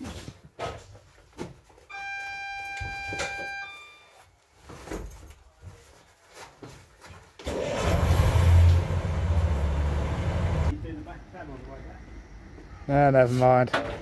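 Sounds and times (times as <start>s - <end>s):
buzzer tone: 1.9s - 4.1s
diesel engine starting: 7.4s - 10.7s.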